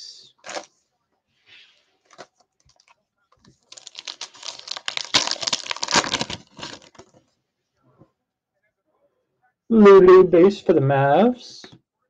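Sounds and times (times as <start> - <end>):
foil wrapper tearing and crinkling: 0.4 - 0.7, 3.6 - 7.2.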